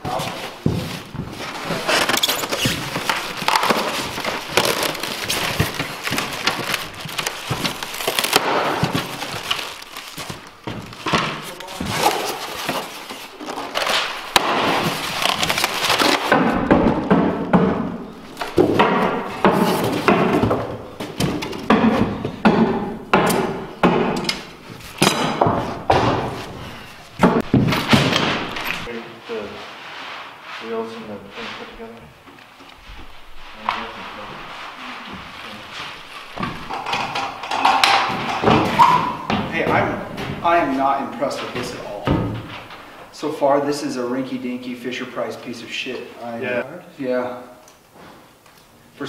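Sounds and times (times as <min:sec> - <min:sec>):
plastic and styrofoam crinkling: 0:00.0 - 0:17.1, 0:31.6 - 0:43.0.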